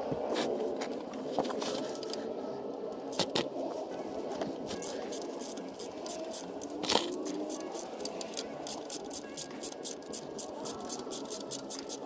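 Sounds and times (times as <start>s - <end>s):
socket wrench ratchet clicking: 5.1s - 12.0s.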